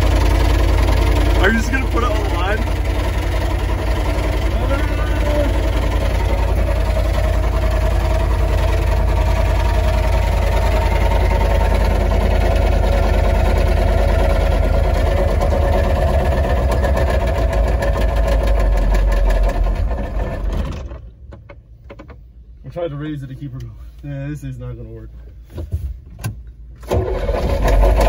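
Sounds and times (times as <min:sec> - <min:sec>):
diesel engine knocking: 0:00.0 - 0:20.9.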